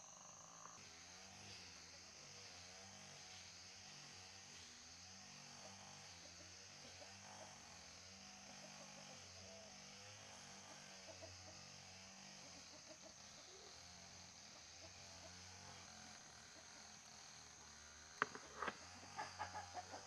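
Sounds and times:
faint chickens clucking: 5.3 - 20.0.

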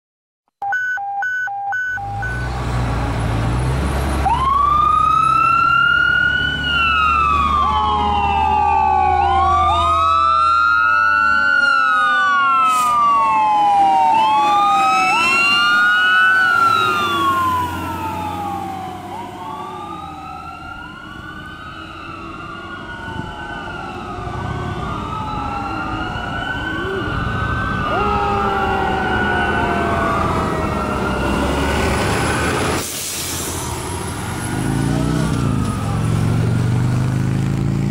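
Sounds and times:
short beeping tones: 0.6 - 2.6
fire engine siren wailing: 0.7 - 37.1
truck engine rumble: 2.0 - 37.9.

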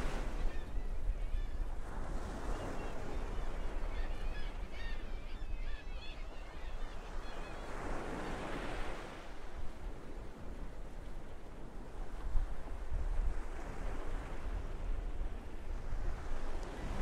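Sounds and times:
waves breaking: 0.0 - 0.6
seagulls calling: 0.0 - 8.7.

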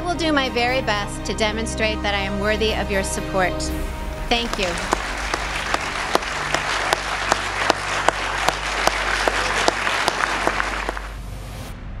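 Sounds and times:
crowd applauding: 4.3 - 11.2.

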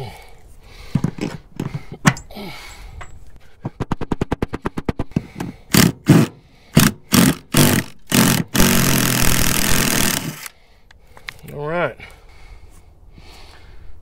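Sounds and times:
driver motor bursts: 5.7 - 10.5.

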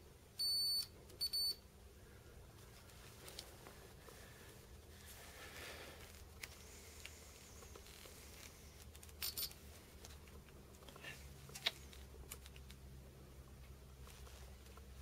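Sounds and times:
low steady hum: 0.0 - 15.0
small metal parts clicking: 8.9 - 9.6.

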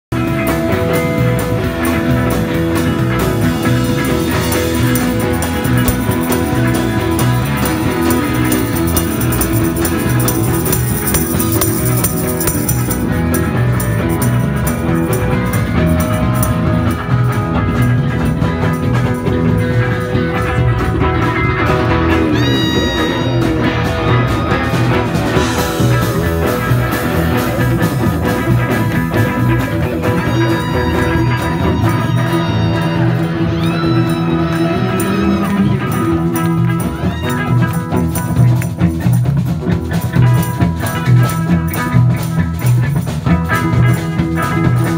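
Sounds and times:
live rock band playing: 0.1 - 44.9
pitch-bending guitar note: 0.2 - 38.4.

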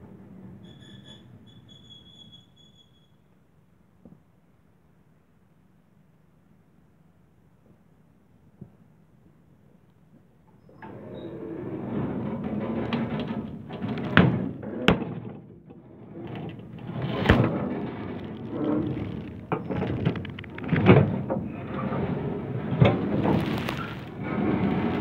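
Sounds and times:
baler mechanical rumble: 15.9 - 25.0.

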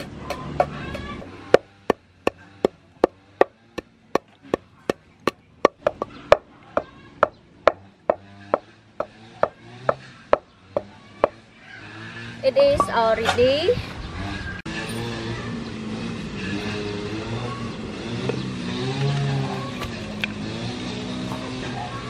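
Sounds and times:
pestle pounding in wooden mortar: 0.0 - 11.4.

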